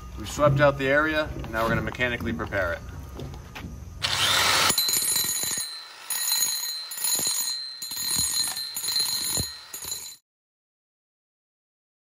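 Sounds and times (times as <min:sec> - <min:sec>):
angle grinder grinding concrete: 0:04.0 - 0:10.2.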